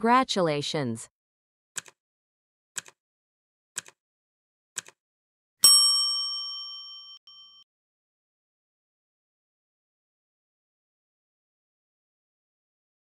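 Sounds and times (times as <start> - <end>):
bright bell ding: 5.6 - 7.6.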